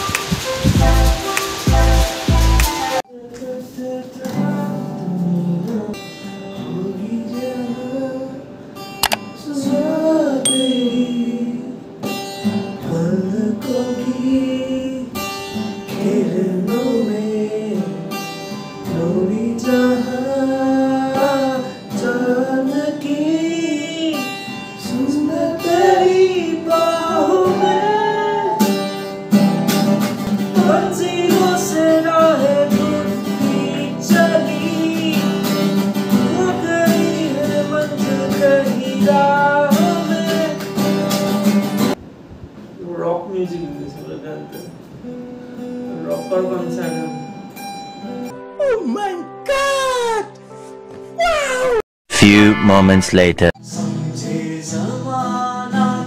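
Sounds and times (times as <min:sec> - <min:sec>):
person singing: 0:09.4 - 0:11.8, 0:24.9 - 0:28.8, 0:52.1 - 0:56.0
acoustic guitar strumming: 0:10.4 - 0:42.0, 0:43.7 - 0:48.5.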